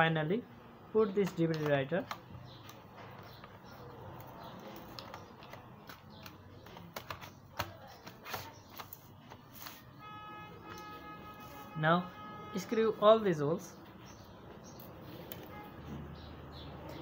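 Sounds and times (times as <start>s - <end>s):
plastic clicks and taps: 1.2s - 3.6s, 4.2s - 9.4s.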